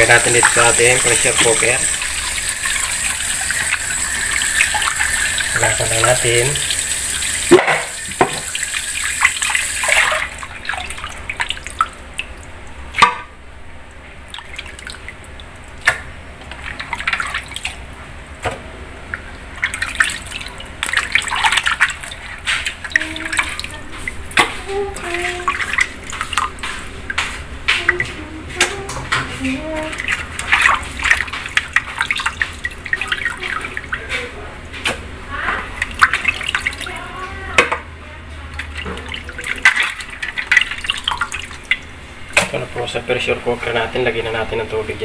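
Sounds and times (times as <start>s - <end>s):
tap water pouring into metal basin: 0.0s - 12.0s.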